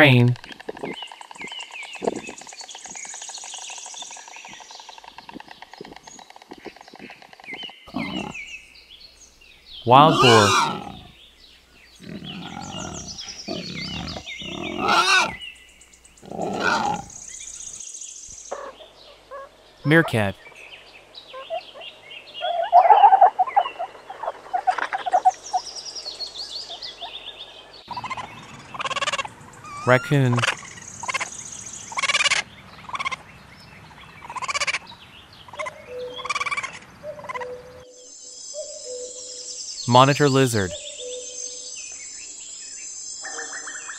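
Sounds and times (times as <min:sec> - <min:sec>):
birds chirping: 0:00.0 - 0:43.9
raccoon chittering: 0:00.4 - 0:03.7, 0:04.4 - 0:08.6, 0:09.8 - 0:11.3, 0:11.9 - 0:17.8, 0:18.5 - 0:20.4, 0:27.9 - 0:33.2, 0:34.2 - 0:34.9, 0:35.5 - 0:37.6
pig grunting: 0:02.0 - 0:02.4, 0:07.9 - 0:08.4, 0:09.9 - 0:11.2, 0:12.0 - 0:15.4, 0:16.2 - 0:17.2.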